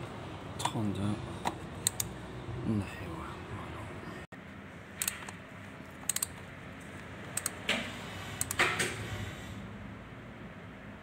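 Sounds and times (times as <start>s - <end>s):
socket wrench clicking: 1.8s - 2.1s, 6.0s - 6.3s, 8.4s - 8.6s.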